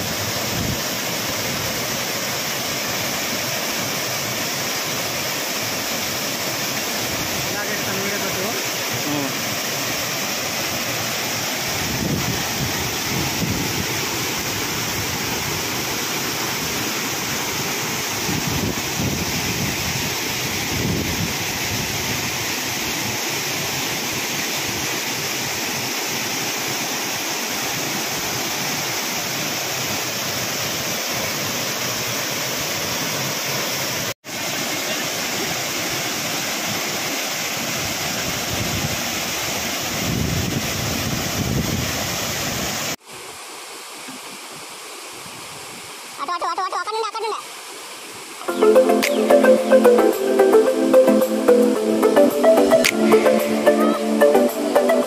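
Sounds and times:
waterfall rushing: 0.0 - 55.0
wind rumble on microphone: 18.3 - 22.4, 39.9 - 42.8.

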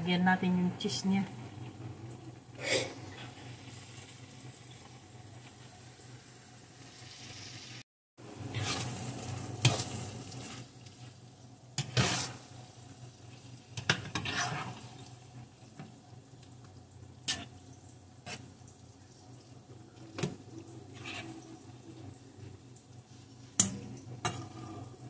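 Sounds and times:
faint sizzle: 0.0 - 25.0.

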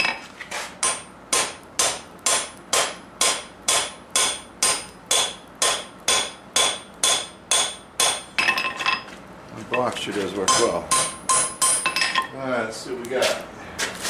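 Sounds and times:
hammer striking steel on anvil: 0.8 - 9.1, 9.7 - 12.3.

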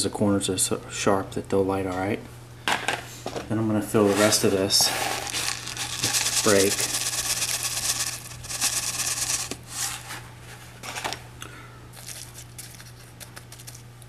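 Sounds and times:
grains pouring with gritty hiss: 4.0 - 10.0.

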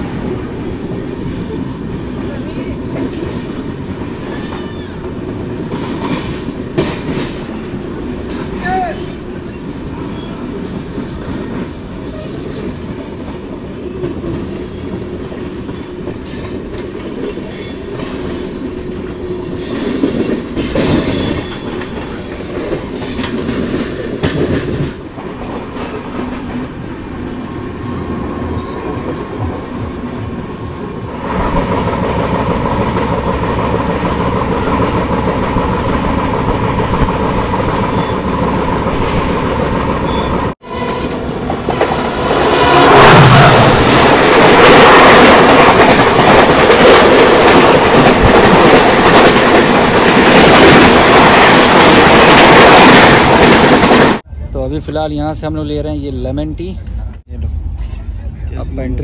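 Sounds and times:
train wheels rumbling on rails: 0.0 - 59.0
wind rush: 42.1 - 54.2.

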